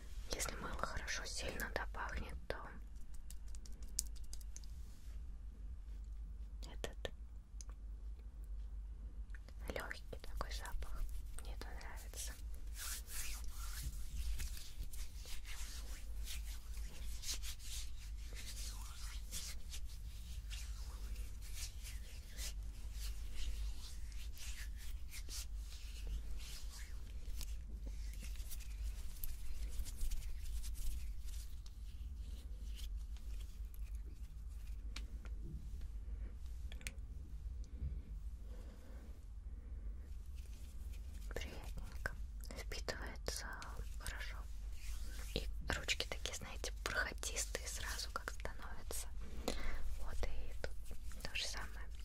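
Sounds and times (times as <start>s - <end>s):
hands rubbing together: 2.9s - 4.9s, 9.8s - 35.9s, 40.3s - 52.0s.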